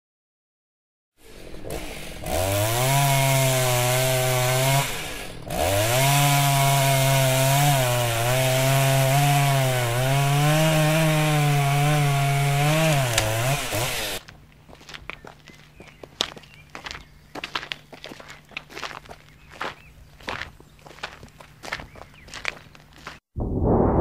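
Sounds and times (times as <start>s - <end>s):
chainsaw revving while cutting: 1.2s - 14.2s.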